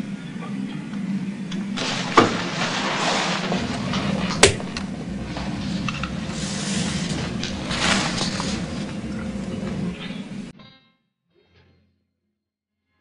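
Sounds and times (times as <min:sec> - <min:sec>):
steady low hum: 0:00.0 - 0:10.5
paper rustling: 0:01.8 - 0:09.9.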